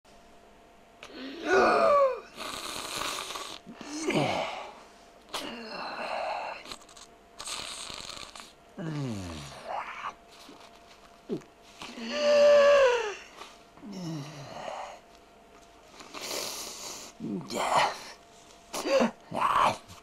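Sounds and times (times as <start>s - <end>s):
person groaning: 1.1s - 2.4s, 3.7s - 4.8s, 5.4s - 6.6s, 8.8s - 10.2s, 11.3s - 15.0s, 17.2s - 18.2s, 18.8s - 20.0s.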